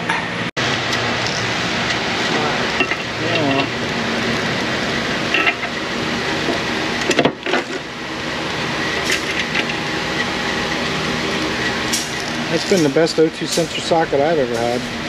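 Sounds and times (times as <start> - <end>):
shop background hum: 0.0 - 15.0.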